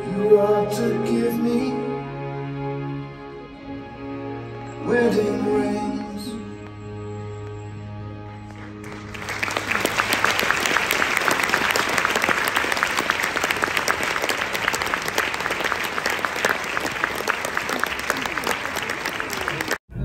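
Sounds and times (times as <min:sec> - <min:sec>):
audience applauding: 0:08.3 - 0:19.8.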